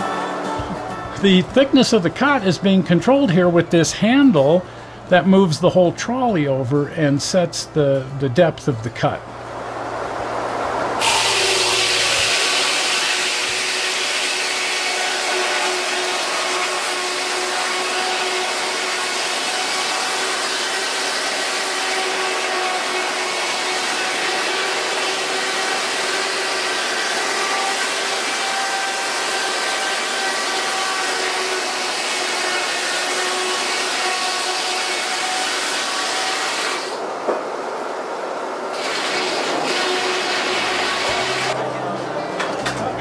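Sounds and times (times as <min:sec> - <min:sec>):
circular saw ripping through log: 0:11.0 - 0:37.0, 0:38.7 - 0:41.6.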